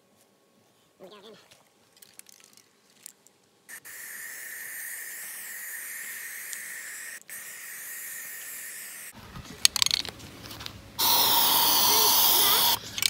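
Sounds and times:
spray paint can hissing: 3.7 - 9.2, 11.0 - 12.8.

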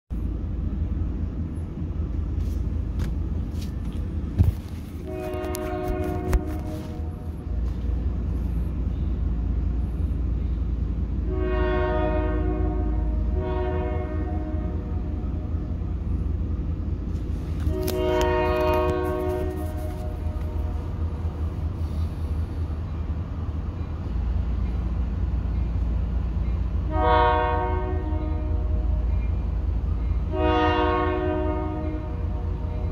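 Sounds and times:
steady low rumble: 0.1 - 11.5, 12.2 - 26.9
train horn blast: 5.0 - 7.9, 11.2 - 16.2, 17.4 - 22.0, 26.8 - 29.2, 30.2 - 32.9.

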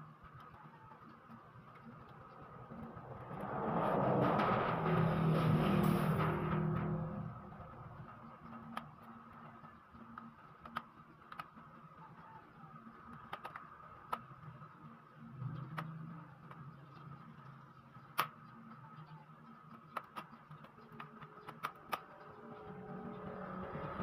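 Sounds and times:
steady hum: 1.8 - 8.8.

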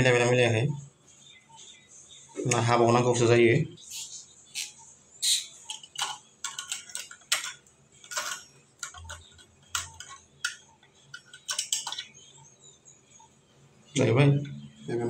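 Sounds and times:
metal fittings clinking: 4.6 - 12.2.

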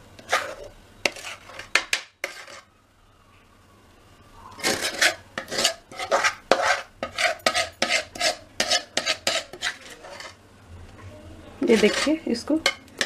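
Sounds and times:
spatula scraping metal pan: 0.2 - 2.7, 4.5 - 10.4, 11.6 - 13.0.

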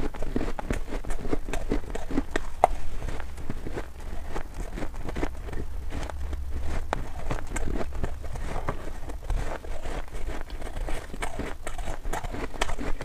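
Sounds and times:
chewing crunchy ice: 0.0 - 13.0.

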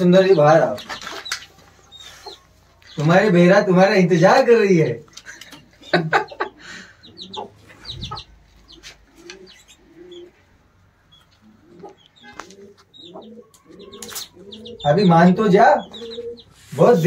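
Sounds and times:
chicks cheeping: 0.0 - 17.0
hens clucking: 0.0 - 17.0.

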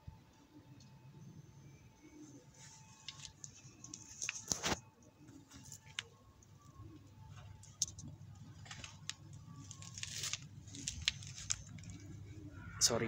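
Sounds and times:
cat chewing crunches: 7.5 - 12.5.

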